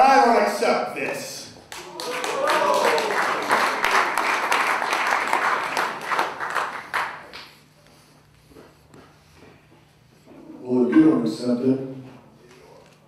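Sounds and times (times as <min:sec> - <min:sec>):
audience applauding: 0:01.7 - 0:07.5.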